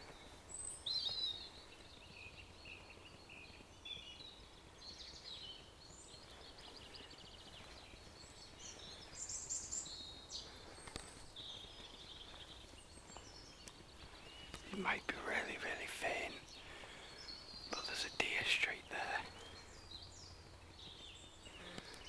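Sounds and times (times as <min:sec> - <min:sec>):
songbirds chirping and trilling: 0:00.0 - 0:22.0.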